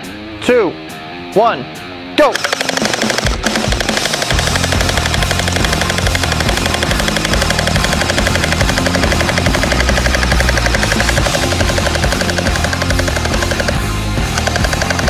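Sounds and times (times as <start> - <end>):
toy blasters firing full auto: 2.3 - 15.0
background music with bass line: 3.2 - 15.0.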